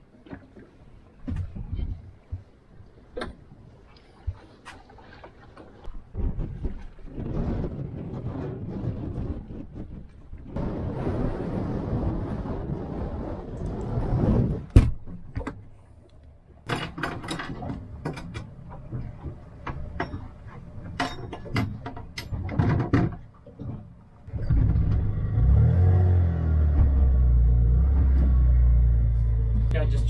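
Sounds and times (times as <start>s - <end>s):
wind noise: 0.6s - 2.5s, 5.8s - 16.0s.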